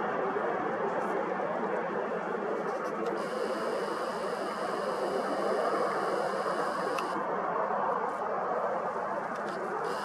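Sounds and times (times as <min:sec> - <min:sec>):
distant jet engine roar: 0:00.0 - 0:10.0
faint high whine: 0:02.7 - 0:10.0.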